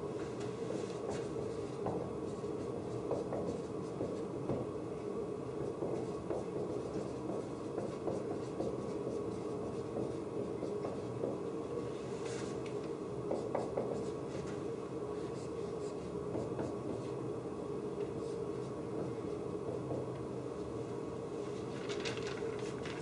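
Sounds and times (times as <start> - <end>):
low room hum: 0.0 - 23.0
marker scratching on whiteboard: 0.7 - 4.2, 5.7 - 11.4, 13.3 - 14.5.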